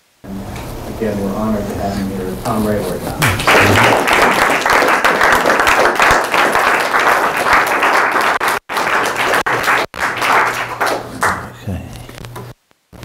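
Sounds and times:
audience applauding: 3.2 - 11.6.

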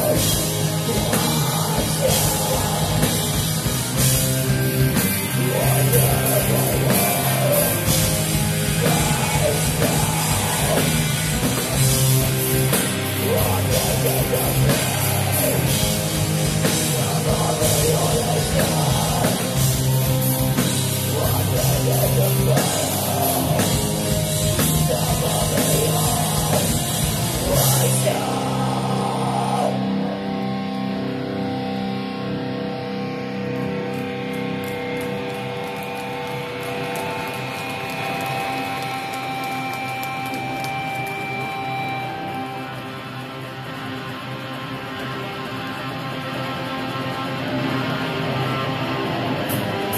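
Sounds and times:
singer's vocals: 0.0 - 3.2, 5.3 - 11.4, 13.0 - 15.9, 16.7 - 19.6, 21.0 - 30.1
pounding drums and cymbals: 0.0 - 29.5
heavy distorted guitars: 0.0 - 49.9.

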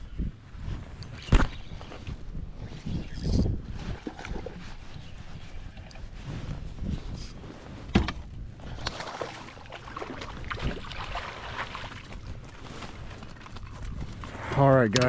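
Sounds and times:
fish thrashing in water: 8.7 - 12.6.

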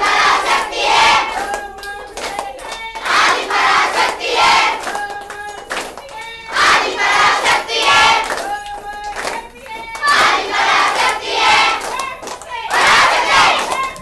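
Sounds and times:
women chanting in unison: 0.0 - 14.0
women clapping in rhythm: 0.0 - 14.0.

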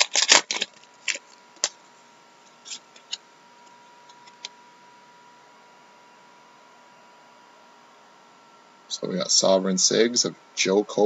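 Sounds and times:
foil wrapper rustling: 0.0 - 1.8.

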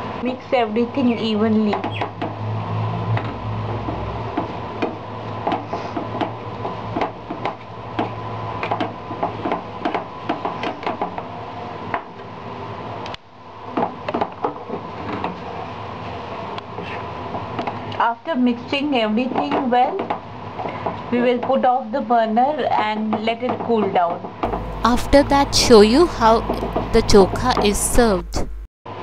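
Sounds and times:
steady low hum: 24.4 - 28.7.

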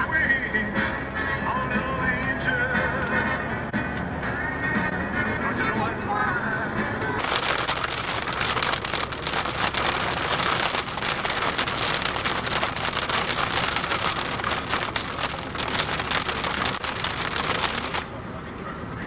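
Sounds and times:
road noise: 0.0 - 19.0
heavy rain on vehicle windscreen: 7.2 - 18.2.

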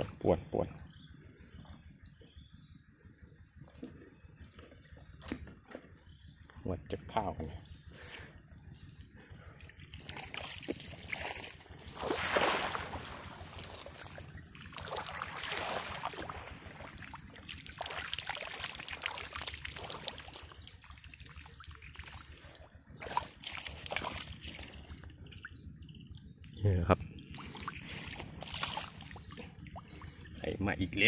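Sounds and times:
water splashing and sloshing: 9.2 - 26.4, 27.1 - 30.5.

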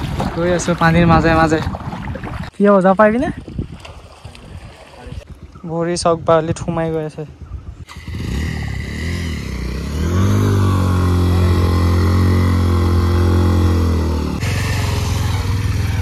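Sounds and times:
motorcycle engine revving: 7.9 - 16.0.

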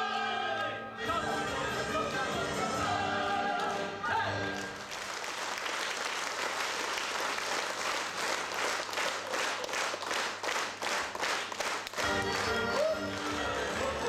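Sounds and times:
audience applauding: 4.5 - 14.0.

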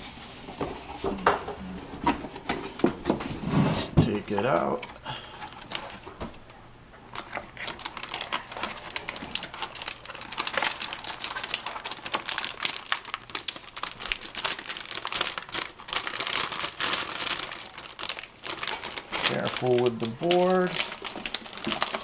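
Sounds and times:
plastic bag crinkling: 4.1 - 6.2, 7.0 - 22.0.

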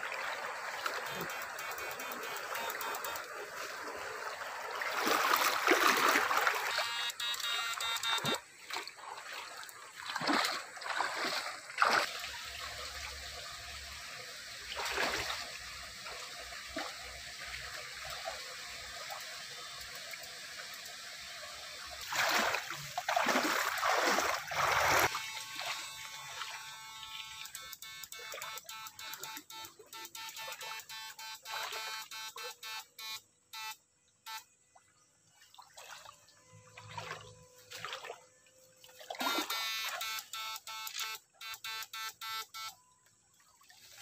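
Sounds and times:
water splashing: 0.0 - 32.6, 35.4 - 40.2
trickle of flowing water: 0.0 - 44.0.

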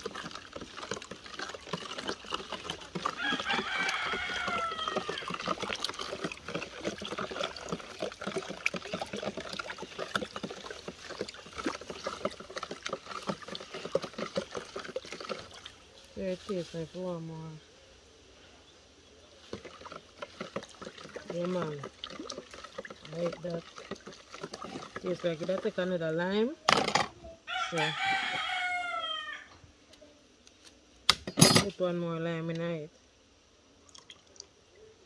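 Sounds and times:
liquid swishing: 0.0 - 17.0, 19.3 - 26.2.

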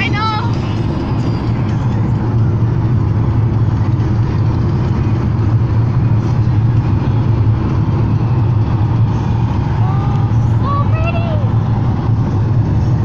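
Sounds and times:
car road noise drone: 0.0 - 13.0.

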